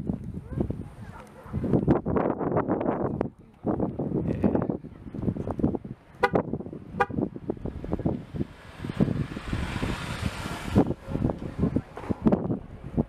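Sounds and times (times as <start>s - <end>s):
car horn toots: 6.2s - 7.3s.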